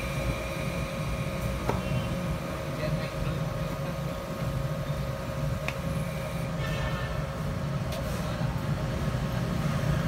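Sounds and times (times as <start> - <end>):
electric pump motor rumble: 0.0 - 7.9
electrical whine: 0.0 - 7.9.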